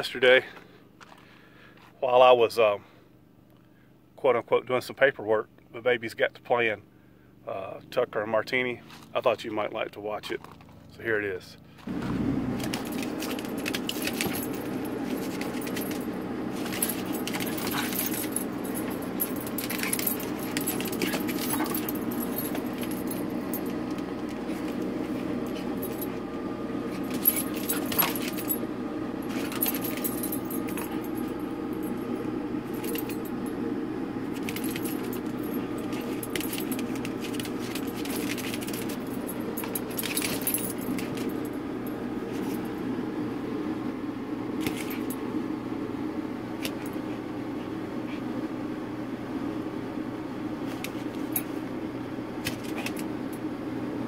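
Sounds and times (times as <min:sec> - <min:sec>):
steady low hum: 0:00.0 - 0:54.0
harness rings jingling: 0:12.6 - 0:33.5, 0:34.3 - 0:42.8.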